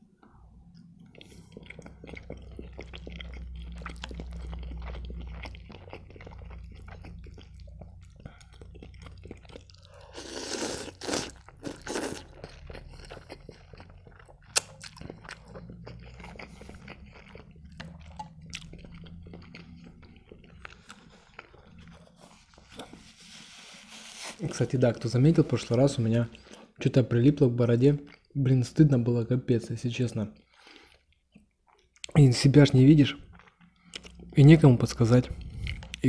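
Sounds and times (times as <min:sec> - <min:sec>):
man chewing noodles: 0:00.7 - 0:23.4, 0:35.3 - 0:36.0
loud noodle slurps: 0:10.1 - 0:12.3.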